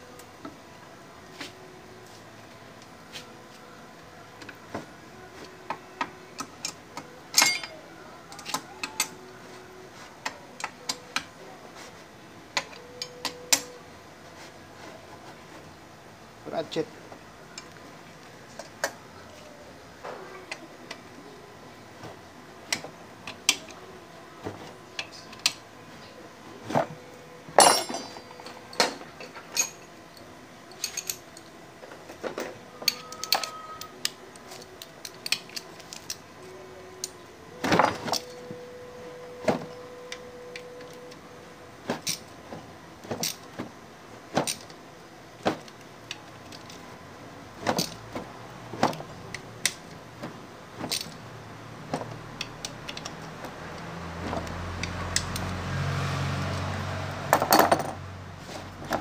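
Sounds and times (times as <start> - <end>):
ringing metallic clink: 7.4 - 7.8, 27.6 - 28.8.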